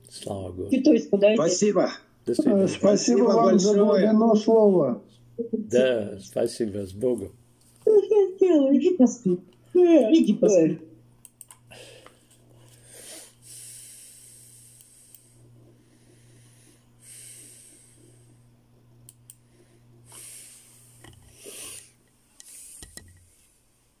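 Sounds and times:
low electrical hum: 0:00.0 - 0:24.0
small clicks: 0:11.2 - 0:12.2
man breathing: 0:11.7 - 0:18.5, 0:19.4 - 0:22.8.

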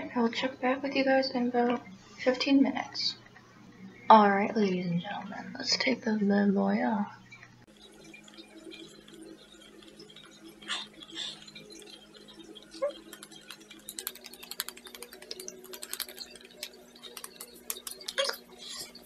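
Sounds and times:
fingertips patting skin: 0:12.8 - 0:18.9.

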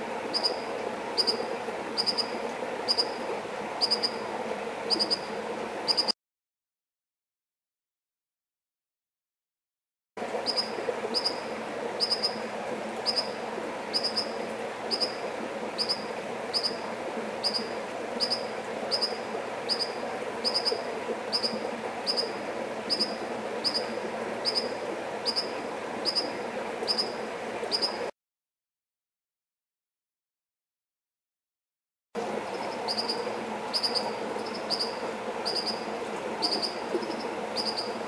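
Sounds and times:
flowing water rushing: 0:00.0 - 0:06.1, 0:10.2 - 0:28.1, 0:32.2 - 0:38.0.

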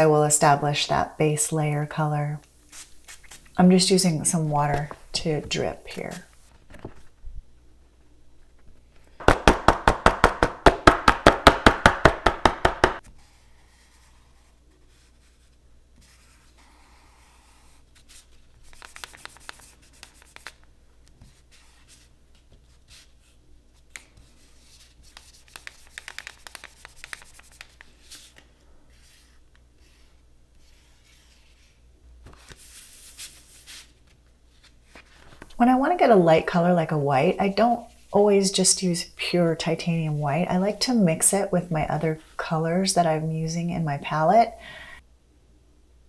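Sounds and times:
marker tip scratching on paper: 0:16.0 - 0:20.5, 0:24.6 - 0:28.2.

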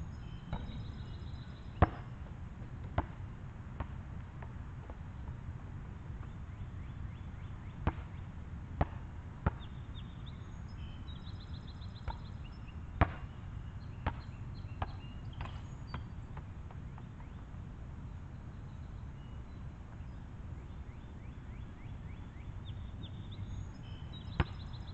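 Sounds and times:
low background noise: 0:00.0 - 0:24.9
basketball thudding on asphalt: 0:01.8 - 0:02.1, 0:02.8 - 0:05.4, 0:07.8 - 0:08.2, 0:08.8 - 0:09.7, 0:13.0 - 0:13.3, 0:14.0 - 0:17.1, 0:24.3 - 0:24.7.

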